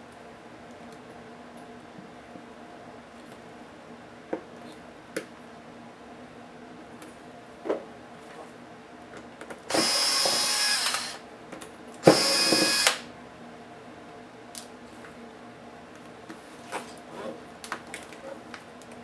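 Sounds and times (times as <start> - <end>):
cordless electric screwdriver running: 9.7 - 11.2, 12.0 - 13.0.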